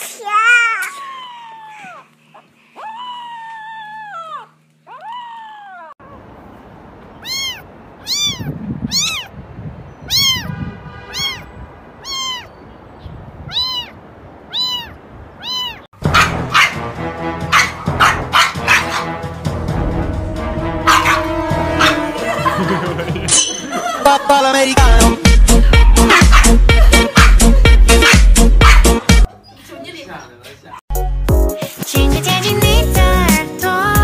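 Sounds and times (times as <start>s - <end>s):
cat meowing: 7.2s - 9.3s, 10.0s - 12.6s, 13.4s - 15.9s
loud music: 16.0s - 23.4s, 24.0s - 29.3s, 30.9s - 34.0s.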